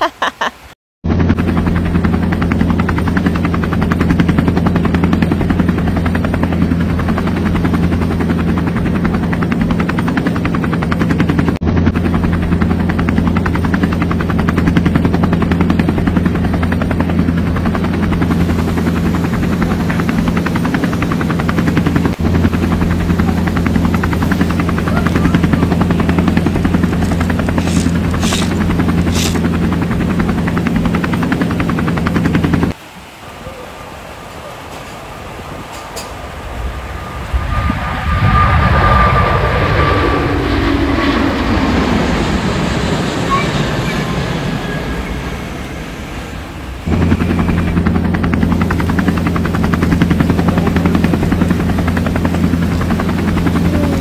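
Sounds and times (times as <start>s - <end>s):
helicopter rotor chopping: 1.0s - 32.8s, 35.8s - 54.0s
low engine drone: 1.1s - 54.0s.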